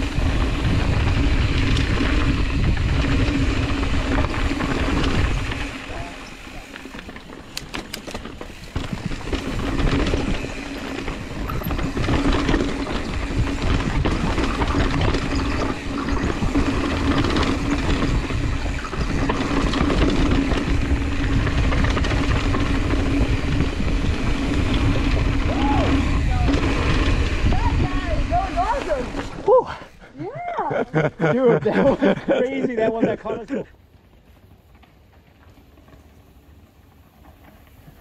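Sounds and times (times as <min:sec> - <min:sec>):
wind buffeting microphone: 0:00.0 - 0:29.8
tyres rumbling over dirt: 0:00.0 - 0:33.7
rattling clicks: 0:06.8 - 0:10.4.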